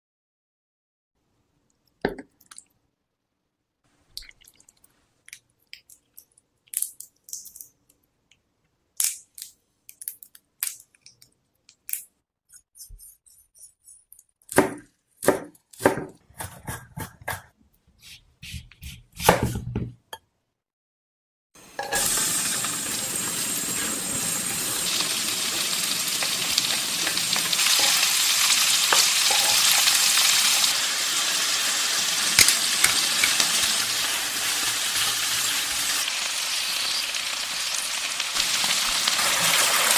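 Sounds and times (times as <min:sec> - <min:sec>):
prawns sizzling in frying pan: 0:21.8 - 0:39.9.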